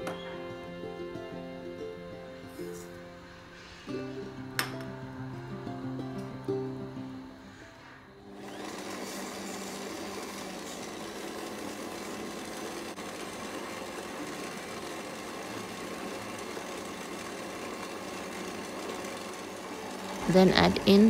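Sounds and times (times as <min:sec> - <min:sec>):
beater creaming butter in bowl: 0:08.3 - 0:21.0
stand mixer motor running: 0:08.3 - 0:21.0.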